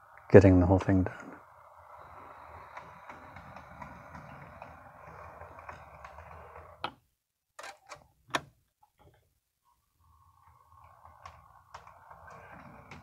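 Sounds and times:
model locomotive motor whine: 0:00.0 - 0:06.9, 0:09.8 - 0:13.0
wheels clicking on track: 0:00.0 - 0:06.9, 0:10.0 - 0:13.0.

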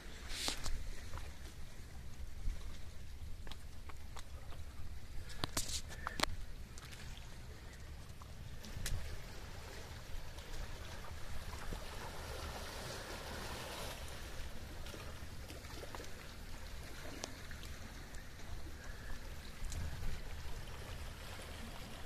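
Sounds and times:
water lapping among rocks: 0:00.0 - 0:22.0
faint clicks: 0:05.2 - 0:07.0.

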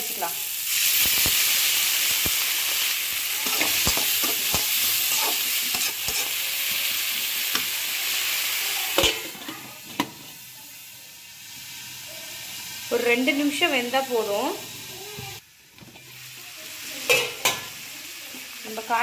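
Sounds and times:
vegetables sizzling in a pan: 0:00.0 - 0:19.0
metal spatula scraping a pan: 0:02.3 - 0:07.8
metal lid clanking onto pan: 0:09.0 - 0:10.2, 0:17.1 - 0:17.7.

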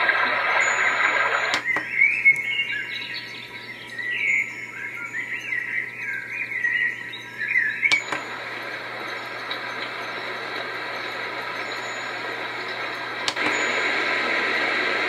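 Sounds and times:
faint steady hum: 0:00.0 - 0:15.0
birds chirping and twittering: 0:00.7 - 0:14.1
sound machine clicks: 0:01.5 - 0:02.4, 0:07.9 - 0:10.0, 0:12.6 - 0:13.7.

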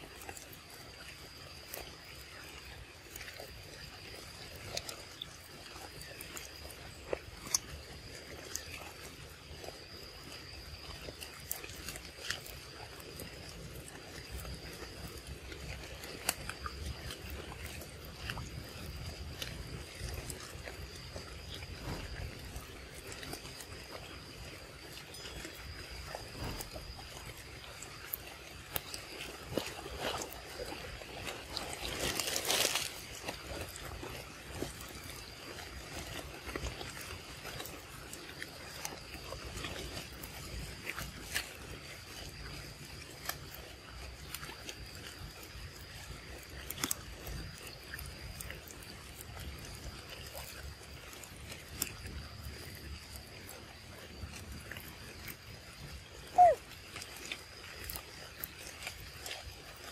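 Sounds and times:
monkey chewing and slurping: 0:00.0 - 0:59.9
high-pitched insect drone: 0:21.0 - 0:31.0
faint steady high tone: 0:24.9 - 0:26.9.

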